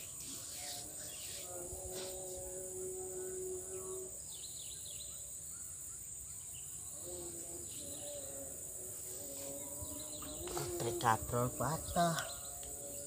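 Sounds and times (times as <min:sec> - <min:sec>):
high-pitched insect drone: 0:00.0 - 0:13.0
bird chirps: 0:09.2 - 0:13.0.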